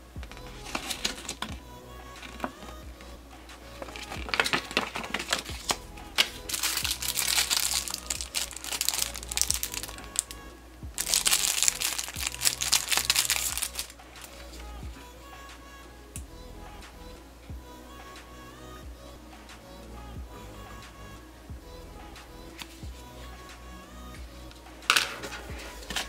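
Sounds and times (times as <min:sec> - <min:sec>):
background music: 0:00.0 - 0:26.0
plastic bag crinkling: 0:03.8 - 0:05.8, 0:06.5 - 0:10.3, 0:11.0 - 0:14.4.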